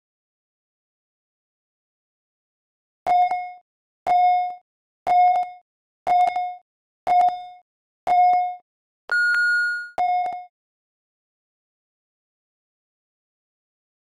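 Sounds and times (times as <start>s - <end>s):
timer countdown beeps: 3.1s - 10.5s.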